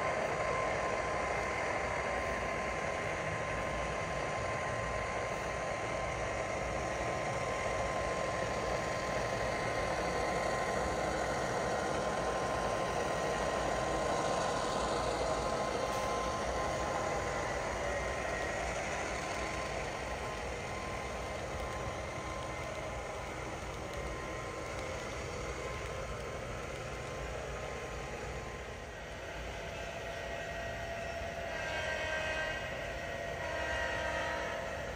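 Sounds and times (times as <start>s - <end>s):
faint constant whine: 0.0s - 34.9s
model train running on rails: 0.0s - 34.9s.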